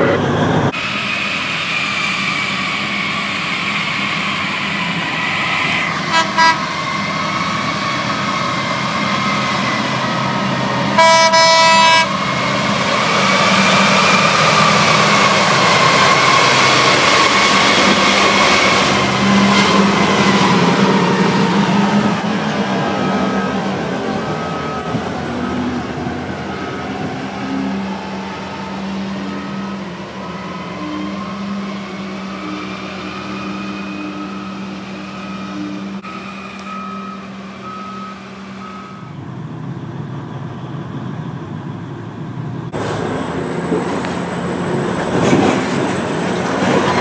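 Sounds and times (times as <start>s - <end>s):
truck horn: 6.1s - 6.8s, 11.0s - 12.2s
heavy machinery drone and whine: 18.7s - 47.0s.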